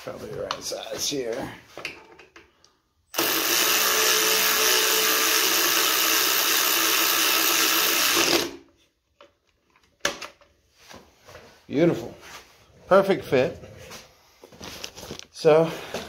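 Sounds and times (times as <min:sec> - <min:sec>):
cordless power tool running: 0:03.1 - 0:08.6.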